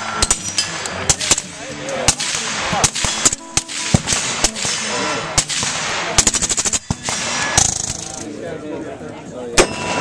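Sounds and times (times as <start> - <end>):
suppressed rifle shots: 0.2 - 8.2.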